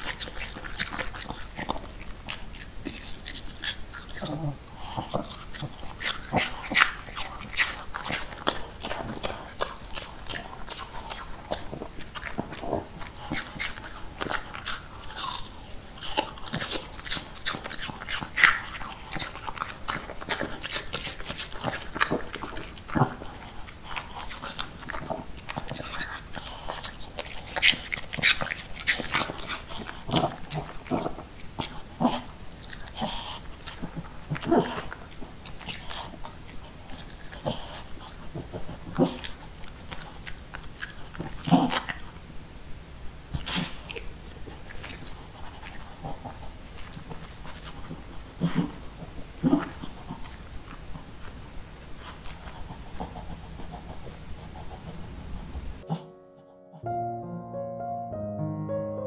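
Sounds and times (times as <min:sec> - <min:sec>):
dog sniffing: 0:00.0 - 0:42.0, 0:43.3 - 0:56.0
dog crunching apple: 0:00.0 - 0:42.4, 0:43.2 - 0:56.0.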